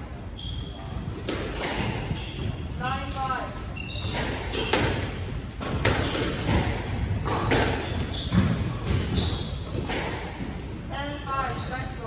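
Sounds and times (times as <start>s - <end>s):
sneakers squeaking on wooden floor: 0.2s - 10.6s
squash ball cracking off rackets: 4.0s - 10.6s.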